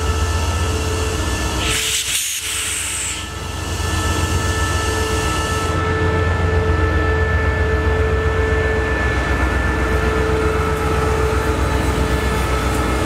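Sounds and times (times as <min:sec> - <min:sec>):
diesel locomotive engine rumble: 0:00.0 - 0:13.0.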